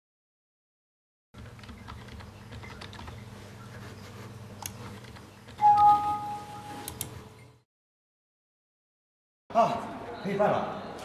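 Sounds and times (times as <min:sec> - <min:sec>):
two-pitch computer alert chime: 0:05.6 - 0:06.8.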